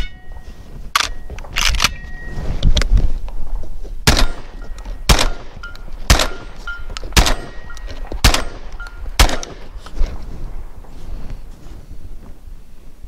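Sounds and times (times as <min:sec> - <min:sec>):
shotgun shots: 0:04.0 - 0:09.8.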